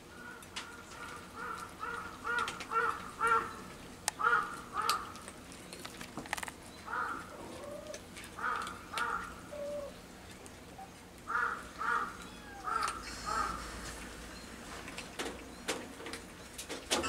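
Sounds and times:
crow cawing: 1.0s - 3.6s, 4.2s - 5.2s, 6.9s - 7.4s, 8.4s - 9.4s, 11.3s - 13.6s.

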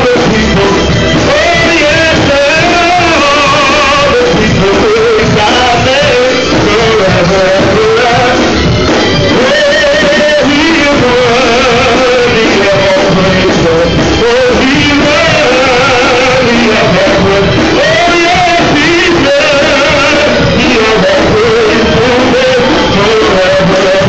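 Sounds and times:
live church band: 0.0s - 24.0s
man singing into microphone: 0.0s - 24.0s.

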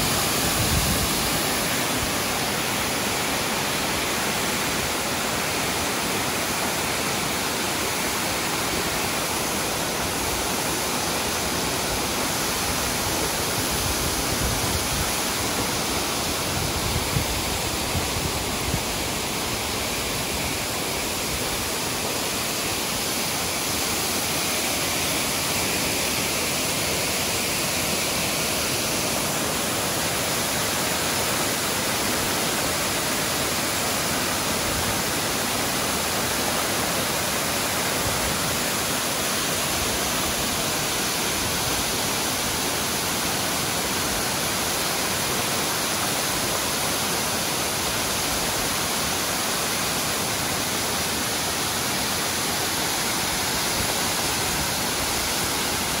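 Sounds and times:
waterfall rushing: 0.0s - 56.0s.

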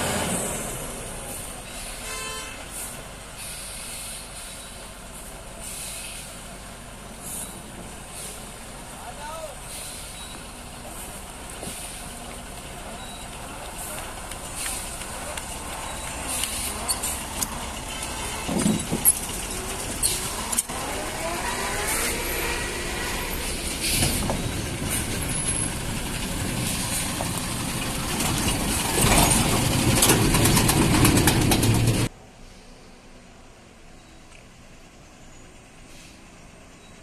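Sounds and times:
lorry diesel engine labouring: 0.0s - 32.2s
air brake hisses: 2.7s - 4.9s, 5.6s - 6.4s, 9.6s - 10.4s, 35.8s - 36.4s.

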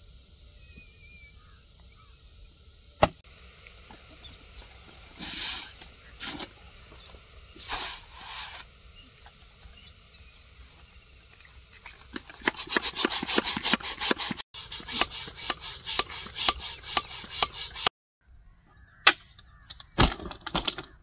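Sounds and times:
air pump strokes: 3.9s - 9.6s, 11.8s - 18.0s.

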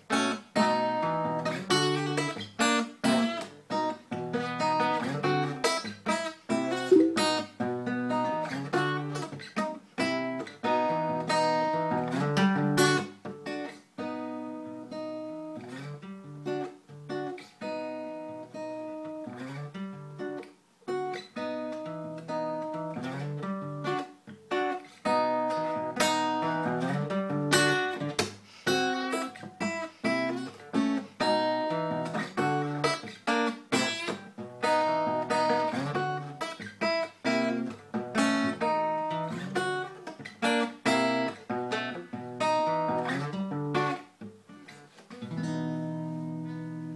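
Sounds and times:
acoustic guitar strumming: 0.1s - 20.4s, 21.0s - 46.9s.

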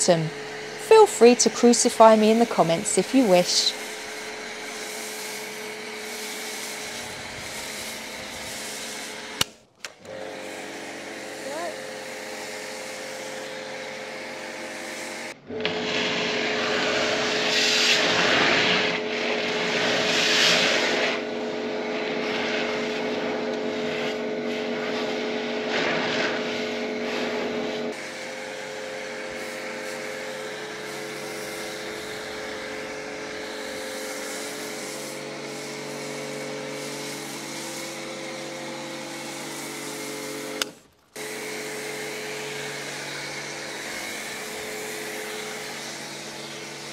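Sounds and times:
spray hissing: 0.0s - 9.4s, 10.4s - 13.4s, 25.8s - 46.9s
pressure washer motor hum: 0.0s - 46.9s.

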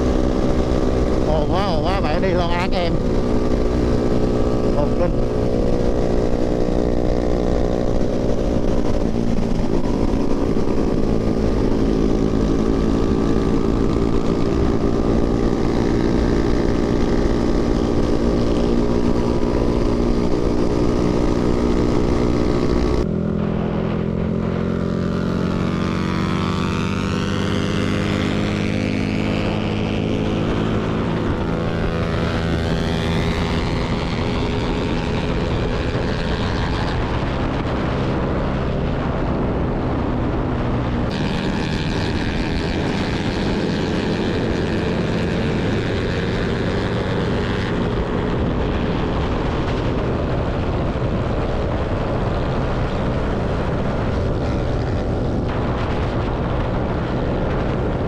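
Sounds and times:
motorcycle engine cruising: 0.0s - 58.0s
wind rush: 0.0s - 58.0s.

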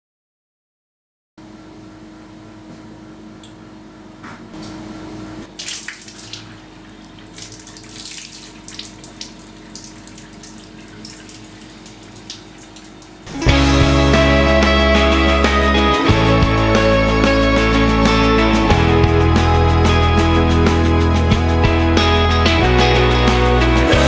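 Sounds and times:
tap water running into sink: 5.5s - 13.3s
water splashes: 5.5s - 13.3s.

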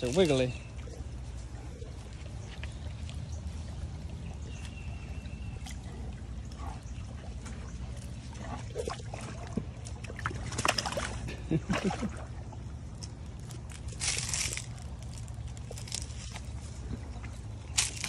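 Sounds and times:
animal lapping water: 0.0s - 18.0s
stream trickling over stones: 6.4s - 18.0s.

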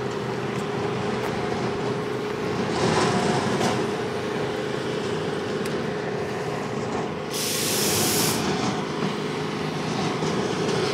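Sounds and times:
loud gas hiss: 7.3s - 8.6s.

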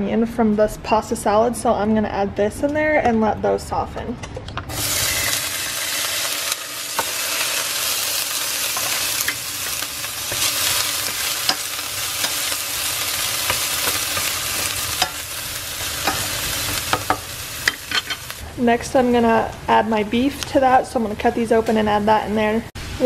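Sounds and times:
onion sizzling in hot oil: 4.7s - 18.6s.

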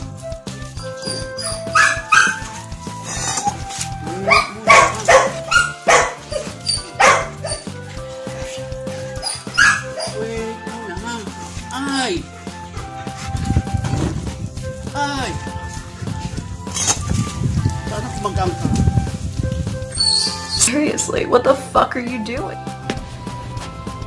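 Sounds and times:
background music: 0.0s - 24.0s
dog barking: 1.1s - 2.6s, 4.2s - 7.7s, 9.2s - 10.3s.

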